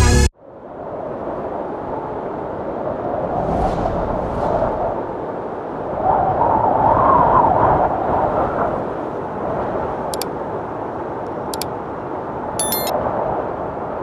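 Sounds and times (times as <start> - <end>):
drone propellers and rushing air: 2.9 - 6.0
mouse click sound effects: 12.6 - 12.9.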